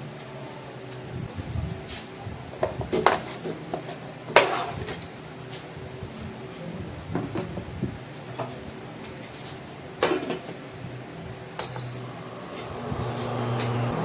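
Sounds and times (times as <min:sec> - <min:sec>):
steady low hum: 0:10.8 - 0:14.0
click with high ring: 0:11.6 - 0:12.2.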